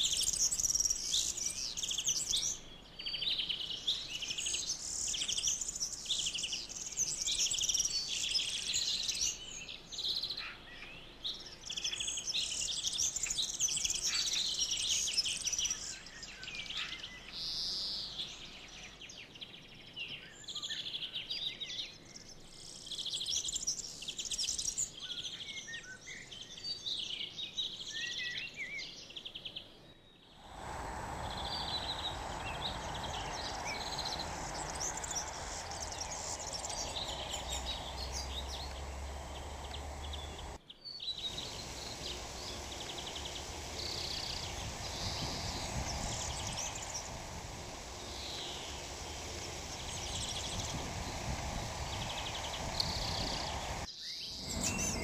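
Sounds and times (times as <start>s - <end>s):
songbirds singing and chirping: 0.0s - 55.0s
steady low rumbling noise: 30.4s - 55.0s.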